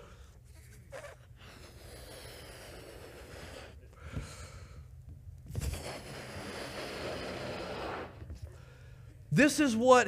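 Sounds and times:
person blowing up balloon: 0:00.9 - 0:03.8, 0:05.5 - 0:08.3.

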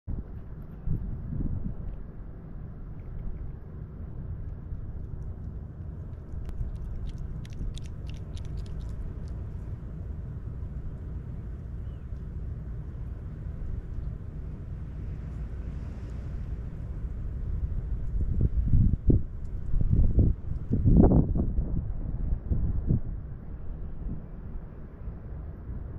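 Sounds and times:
wind on microphone: 0:00.1 - 0:03.7, 0:04.5 - 0:25.9
animal chewing crunches: 0:04.4 - 0:10.0.

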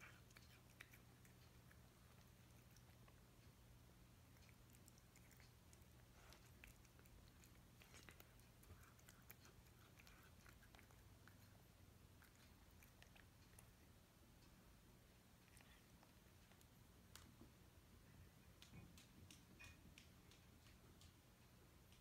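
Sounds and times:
cat chewing wet food: 0:00.0 - 0:17.6.

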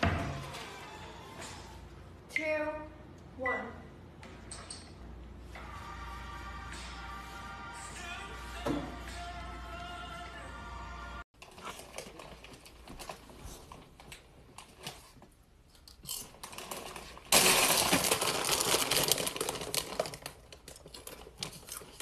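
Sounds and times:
plastic chip bag crinkling: 0:16.1 - 0:22.0.

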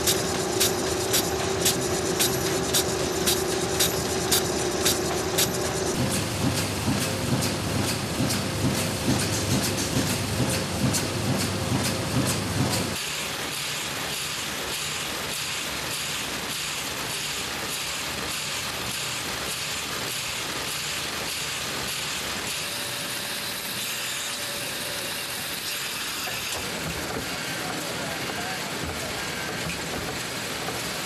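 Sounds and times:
printing press running: 0:00.0 - 0:31.0.

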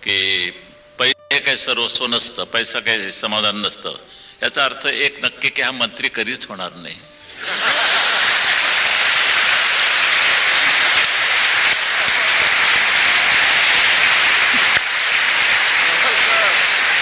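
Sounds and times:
crowd applauding and cheering: 0:07.3 - 0:17.0.

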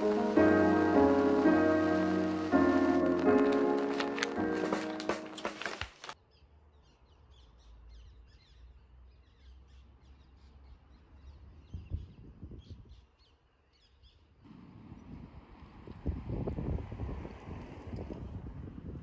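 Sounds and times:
wind on microphone: 0:15.0 - 0:19.0.

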